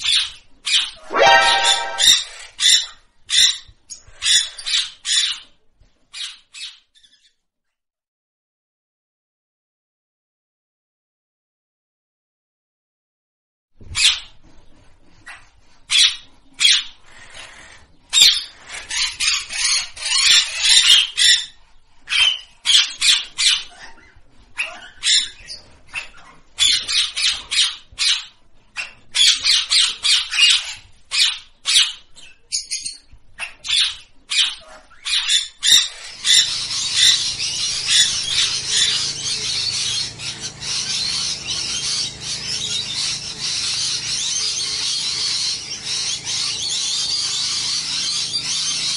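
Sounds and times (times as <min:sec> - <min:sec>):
parakeet squawking: 0:01.0 - 0:02.9, 0:33.4 - 0:48.9
chatter of many birds: 0:15.2 - 0:48.9.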